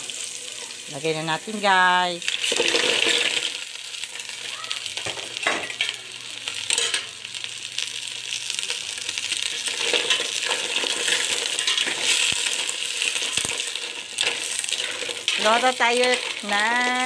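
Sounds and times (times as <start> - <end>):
mussels sizzling in a pot: 0.0 - 17.0.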